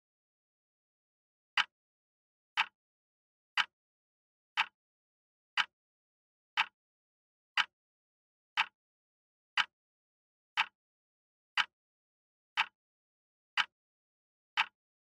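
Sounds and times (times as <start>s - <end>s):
timer ticking: 14.6s - 14.8s.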